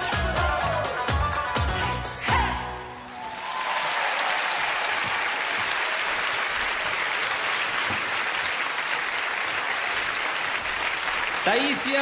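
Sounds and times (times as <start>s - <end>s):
audience applauding: 2.9s - 12.0s.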